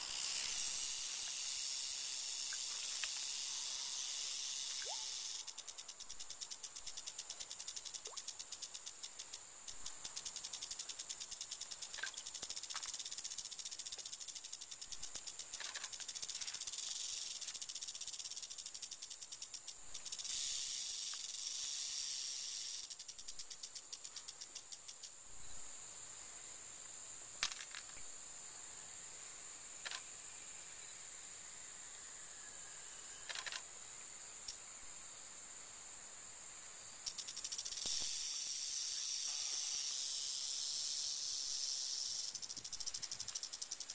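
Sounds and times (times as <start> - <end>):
rattlesnake rattle buzzing: 0.0 - 25.3, 29.8 - 31.3, 32.8 - 34.8, 37.0 - 43.9
sharp clicks: 29.8 - 30.0, 33.3 - 33.6.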